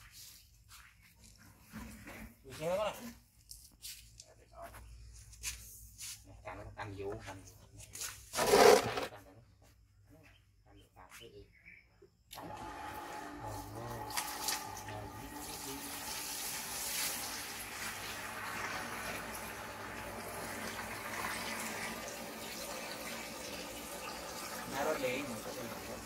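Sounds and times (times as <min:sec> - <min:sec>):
hose water splashing into tub: 0:12.4 - 0:26.0.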